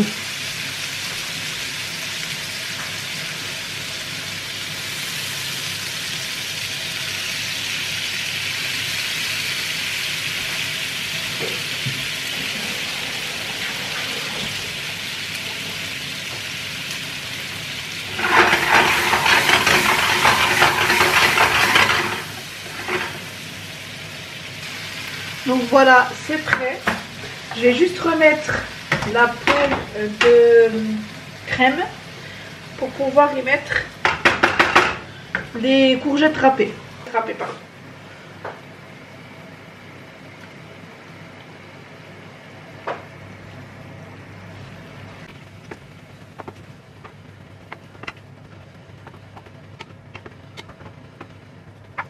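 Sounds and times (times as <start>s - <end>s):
fish sizzling in a frying pan: 0.0s - 36.5s.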